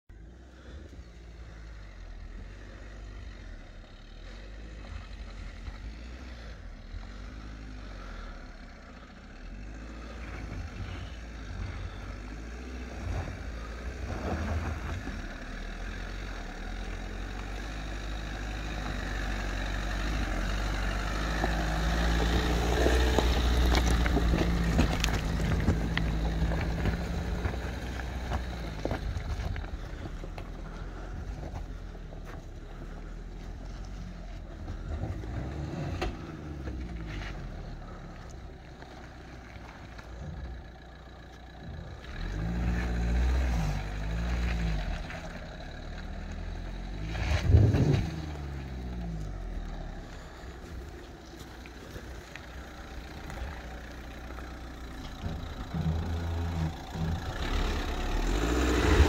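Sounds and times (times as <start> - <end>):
diesel engine running: 0.1 - 59.0
tyres crunching over loose stones: 20.1 - 59.0.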